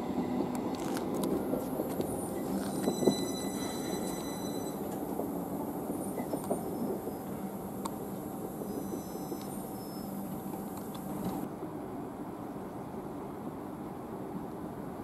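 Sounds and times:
electric train equipment humming: 0.0s - 11.5s.

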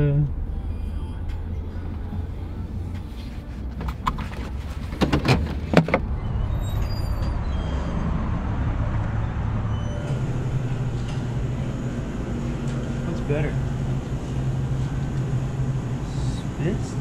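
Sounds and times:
steady low tone: 0.0s - 3.7s, 7.3s - 17.0s
steady low hum: 0.0s - 4.9s, 8.2s - 17.0s.

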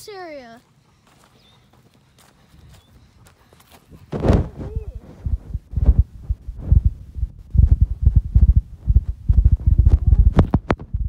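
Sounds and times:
wind rumbling on microphone: 3.9s - 11.0s.

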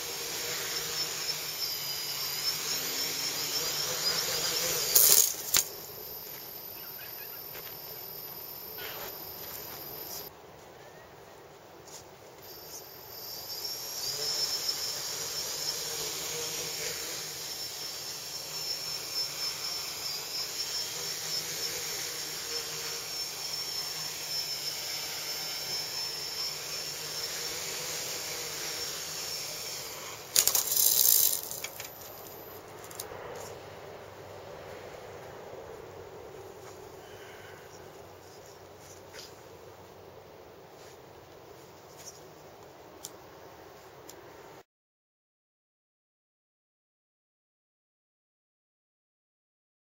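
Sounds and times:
drone motors whining: 0.0s - 10.3s, 12.4s - 33.5s.

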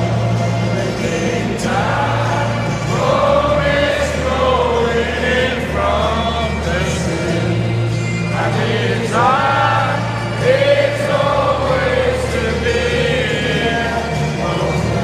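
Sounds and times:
crowd singing together: 0.0s - 15.0s.

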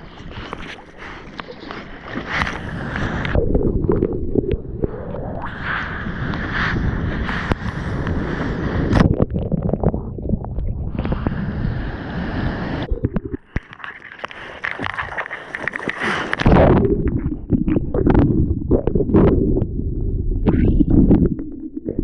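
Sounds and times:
wind buffeting microphone: 2.3s - 13.4s
ocean water rushing and splashing: 10.8s - 16.8s.

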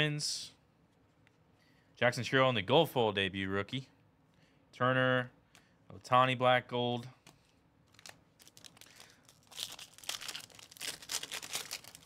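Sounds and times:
foil wrapper tearing and crinkling: 7.9s - 12.0s.

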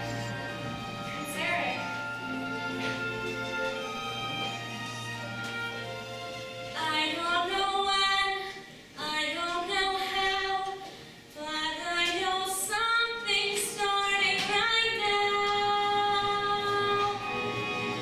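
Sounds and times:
woman singing a slow ballad: 11.4s - 17.3s.

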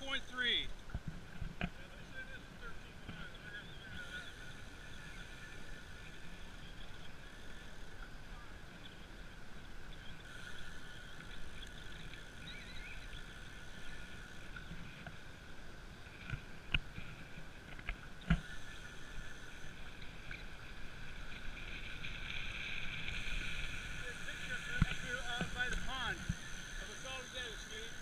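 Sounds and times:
high-pitched hum: 2.6s - 28.0s.

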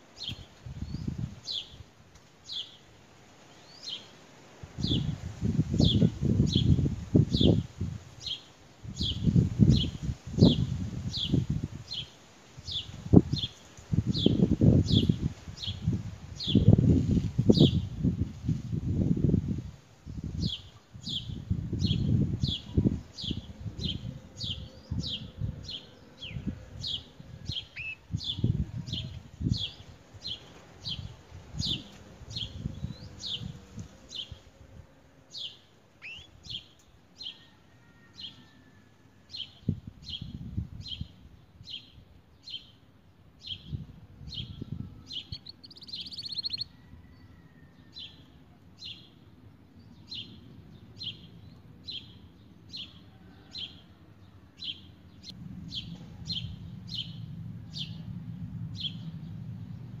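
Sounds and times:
canary chirping and trilling: 45.2s - 46.7s
low background rumble: 54.0s - 60.0s.

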